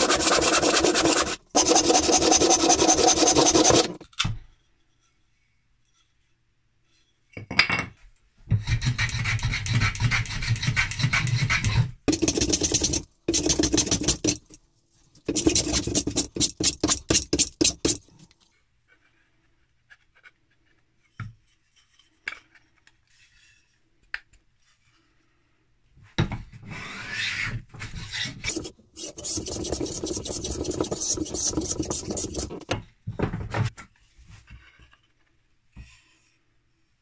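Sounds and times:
hand plane shaving wood: 0.0 - 4.0, 28.5 - 32.6.

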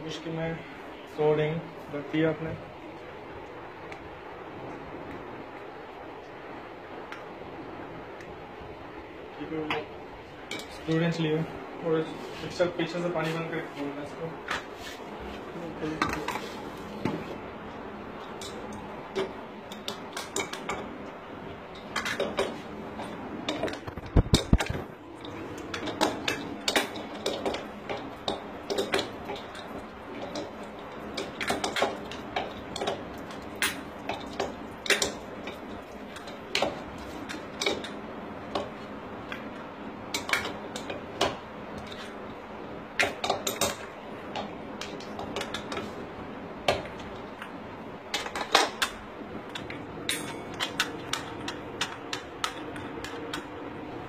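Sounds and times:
hand tool clinking on metal: 50.1 - 50.9.

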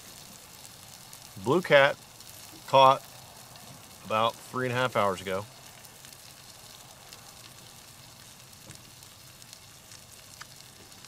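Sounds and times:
fish sizzling in butter: 0.0 - 11.0
small pops: 5.6 - 11.0.

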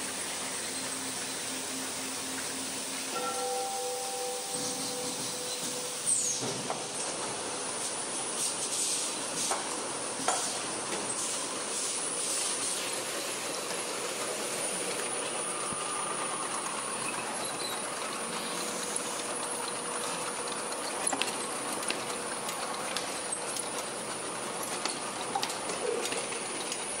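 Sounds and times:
conveyor machinery hiss and hum: 0.0 - 27.0
machine clicks and clacks: 19.0 - 27.0.

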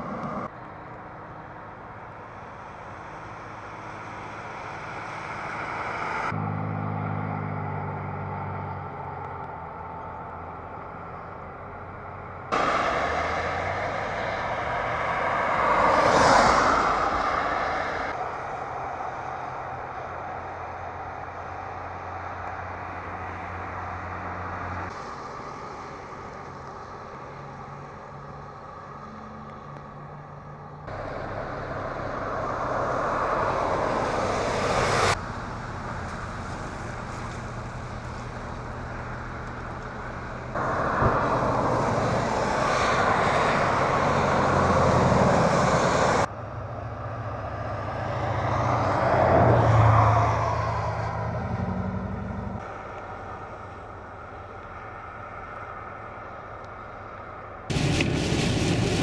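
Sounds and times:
traffic hiss on wet streets: 0.0 - 6.3, 12.5 - 46.3, 52.6 - 59.0
vehicle passing by: 2.5 - 56.5.

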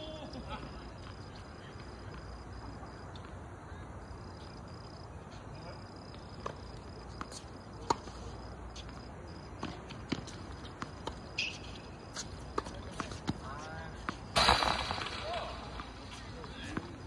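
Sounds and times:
tennis balls struck by rackets: 14.1 - 17.0.

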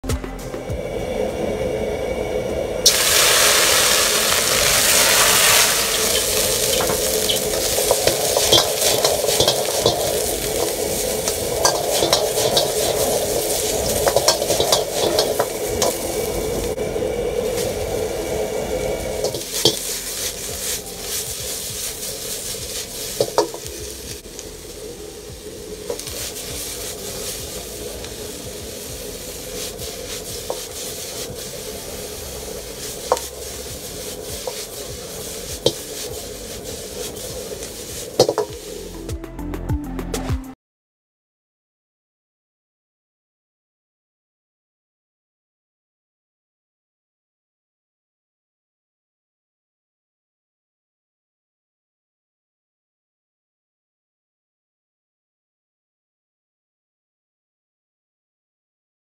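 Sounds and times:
gas burner roaring: 0.4 - 39.1
ladle scraping and clicking on wok: 2.8 - 16.8, 17.4 - 18.2, 18.8 - 24.8, 25.6 - 39.0
food sizzling in hot oil: 2.8 - 39.0.

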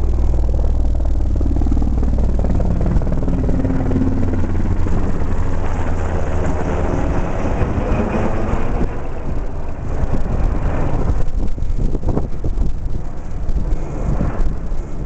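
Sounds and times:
helicopter rotor beating: 0.0 - 15.0.

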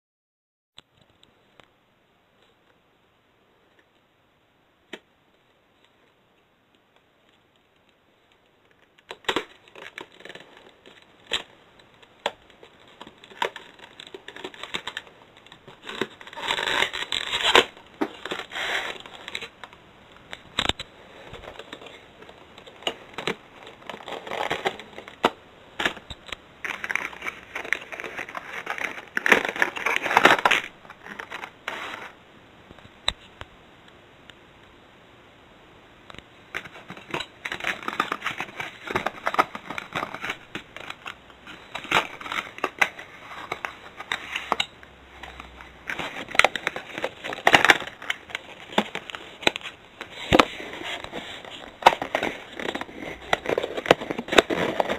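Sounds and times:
scraping and crinkling: 7.2 - 32.2, 36.5 - 54.9
box being handled and opened: 8.8 - 32.2, 36.5 - 54.9.

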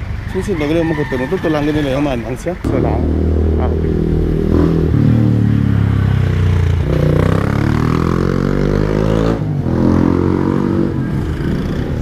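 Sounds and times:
vehicle engine accelerating: 2.6 - 12.0.

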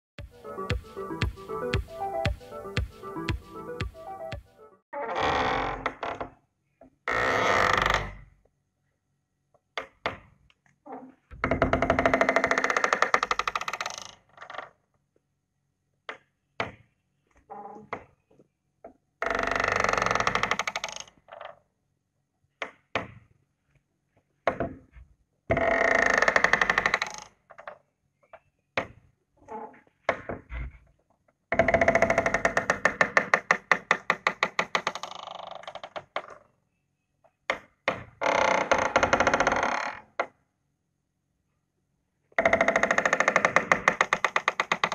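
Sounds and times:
wooden door creaking: 3.3 - 8.4, 10.8 - 14.8, 16.6 - 21.6, 24.6 - 27.9, 29.4 - 30.9, 31.5 - 36.5, 37.5 - 40.4, 42.4 - 44.9.

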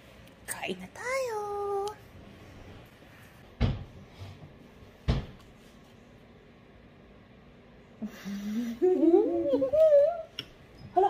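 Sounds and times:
person humming: 8.0 - 10.3.

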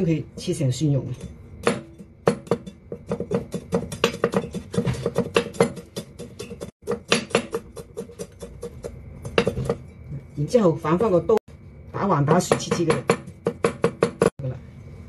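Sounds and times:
cleaver chopping on wooden block: 6.8 - 8.5.

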